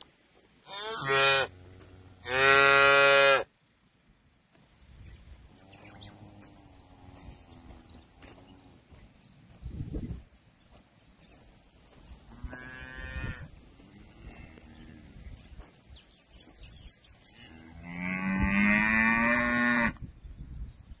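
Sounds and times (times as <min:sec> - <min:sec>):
cattle mooing: 0:00.7 - 0:03.4.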